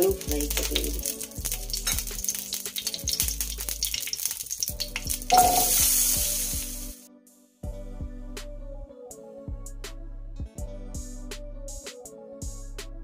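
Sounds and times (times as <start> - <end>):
hot oil crackling: 0.0 - 7.0
potatoes sizzling in oil: 0.0 - 7.0.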